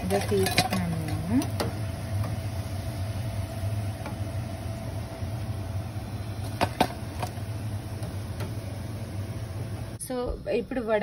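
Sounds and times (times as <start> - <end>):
metal spoon clinking on vessels: 0.0 - 1.7
low mechanical hum: 0.0 - 11.0.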